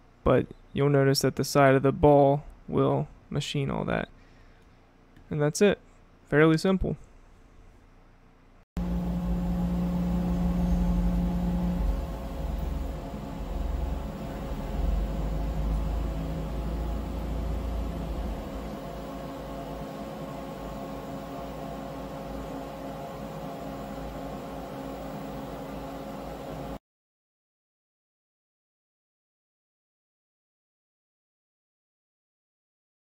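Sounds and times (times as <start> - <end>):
low rumble: 8.8 - 19.8
machine hum with steady tones: 8.8 - 26.8.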